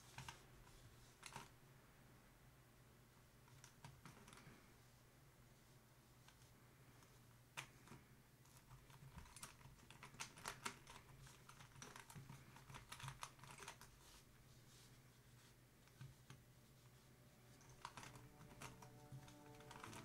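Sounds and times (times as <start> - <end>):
plastic twisty puzzle clicks: 17.6 - 20.0.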